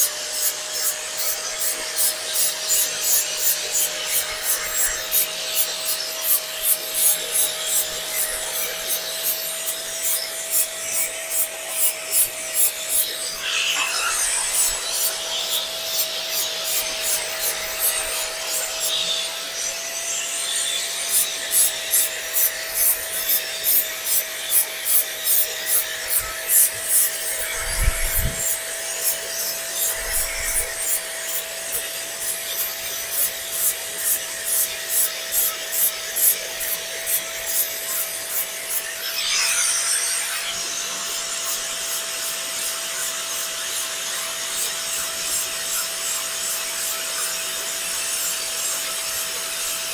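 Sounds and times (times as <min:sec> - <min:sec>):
angle grinder whining: 0:00.0 - 0:49.9.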